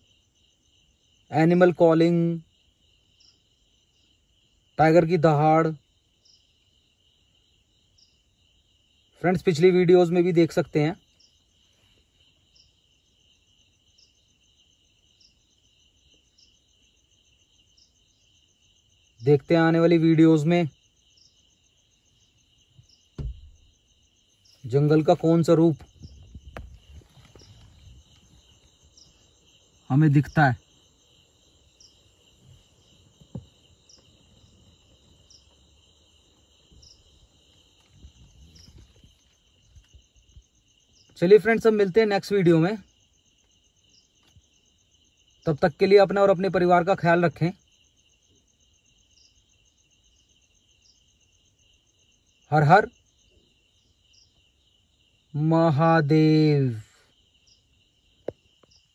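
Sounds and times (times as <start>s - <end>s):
night insects trilling: 0.0s - 58.9s
short high insect chirp: 0.0s - 58.9s
light knock: 23.2s - 23.6s, 33.2s - 33.6s.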